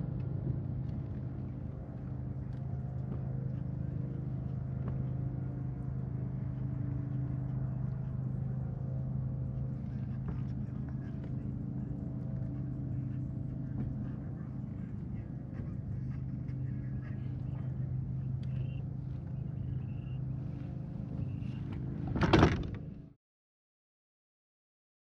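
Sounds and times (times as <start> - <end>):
motor hum: 0.0 - 23.1.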